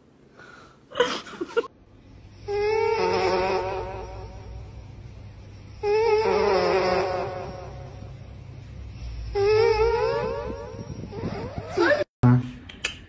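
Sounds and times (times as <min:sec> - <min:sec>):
cat snoring: 0:05.8 - 0:07.8.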